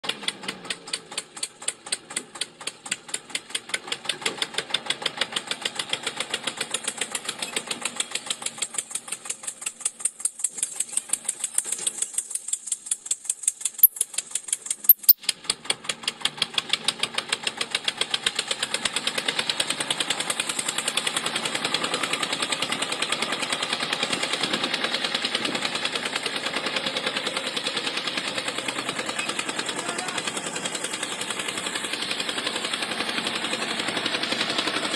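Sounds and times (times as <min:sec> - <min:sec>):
tractor engine putt-putt: 0:00.0 - 0:34.9
sharp clicks: 0:14.9 - 0:15.2.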